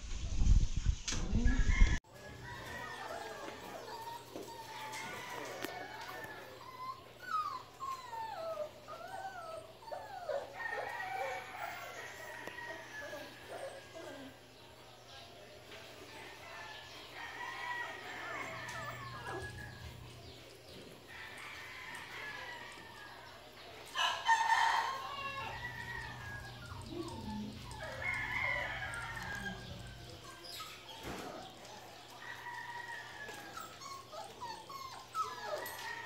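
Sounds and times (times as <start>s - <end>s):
rooster crowing: 1.7s - 6.6s, 10.6s - 14.3s, 16.4s - 20.1s, 21.1s - 23.4s, 24.0s - 30.5s, 35.5s - 36.0s
puppies whining: 2.0s - 36.0s.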